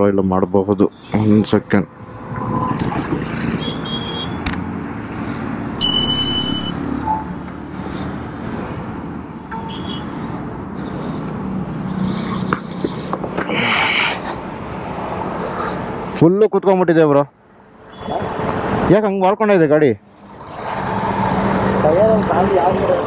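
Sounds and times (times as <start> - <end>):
vehicles passing: 0.0 - 23.0
short high beeps: 3.6 - 4.4, 5.8 - 7.3.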